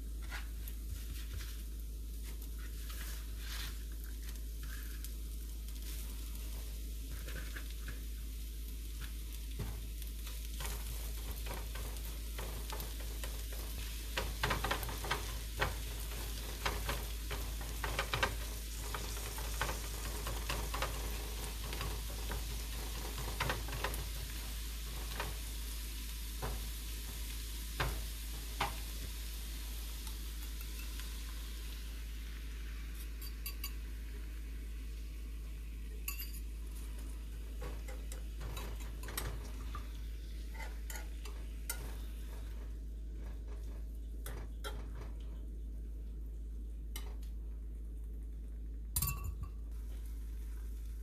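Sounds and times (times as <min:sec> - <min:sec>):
spinach sizzling in a pan: 0:00.0 - 0:51.0
spatula scraping a pan: 0:02.3 - 0:05.2, 0:06.6 - 0:08.2, 0:40.4 - 0:45.0.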